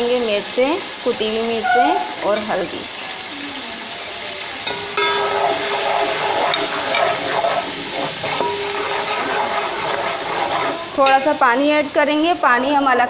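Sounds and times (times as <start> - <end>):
spices sizzling in hot oil: 0.0 - 13.0
metal spoon scraping pot: 4.7 - 11.3.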